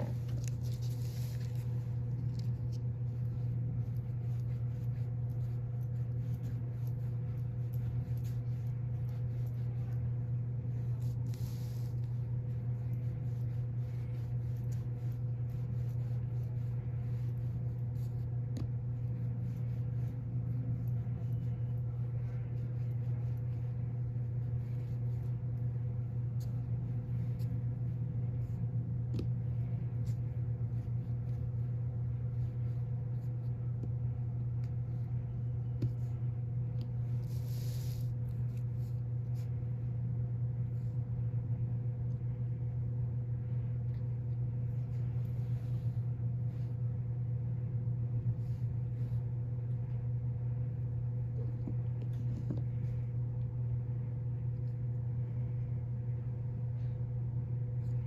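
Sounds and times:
hands rubbing clay: 0.0 - 40.0
steady low hum: 0.0 - 58.0.

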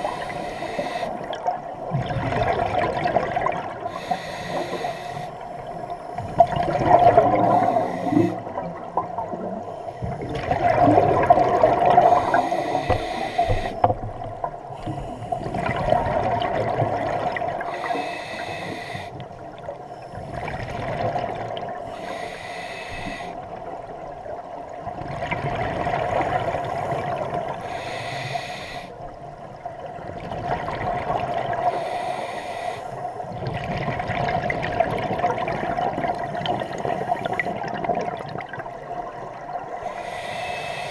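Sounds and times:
regulator inhalation hiss: 0.0 - 1.3, 3.9 - 5.5, 7.4 - 8.4, 12.0 - 13.9, 17.7 - 19.2, 21.9 - 23.4, 27.6 - 29.0, 31.7 - 33.1, 39.8 - 40.9
exhaled bubbles burbling: 1.2 - 3.9, 6.2 - 13.0, 15.4 - 17.7, 20.3 - 21.8, 24.9 - 27.6, 30.0 - 31.6, 33.4 - 39.7.

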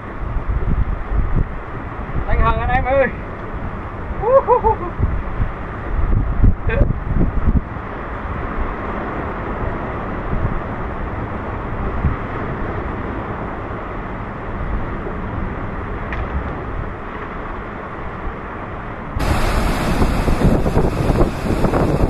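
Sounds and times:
wind buffeting microphone: 0.0 - 13.8, 19.2 - 22.0
surf breaking on rocks: 19.2 - 22.0.

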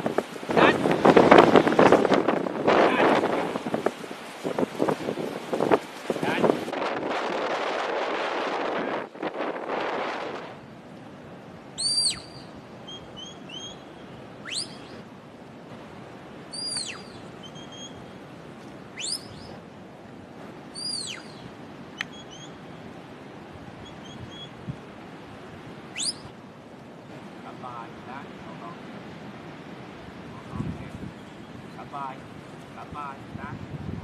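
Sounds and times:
faint bird chirps: 11.8 - 15.0, 16.5 - 18.1, 19.0 - 19.6, 20.8 - 22.6, 23.8 - 24.6, 26.0 - 26.3
high downward-sweeping whistles: 11.8 - 15.0, 16.5 - 18.0, 19.0 - 19.6, 20.8 - 22.6, 25.9 - 26.3.

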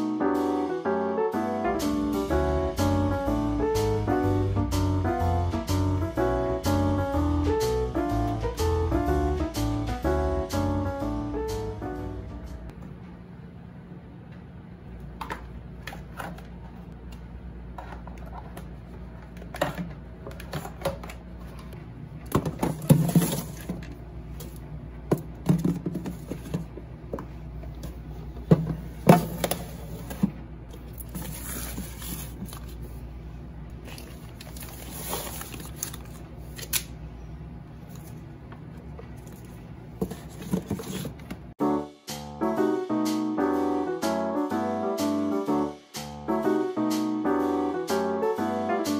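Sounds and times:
refrigerator hum: 0.8 - 41.6
plastic containers knocking and rustling: 17.8 - 32.7, 39.3 - 41.5.

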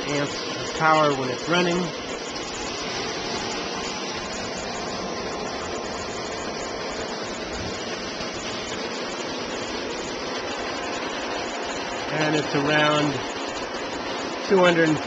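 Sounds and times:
faint motor hum: 0.0 - 15.0
pool pump running: 0.0 - 15.0.

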